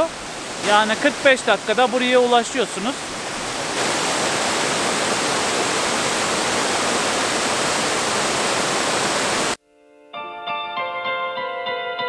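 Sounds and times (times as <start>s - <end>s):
waterfall rushing: 0.0s - 9.6s.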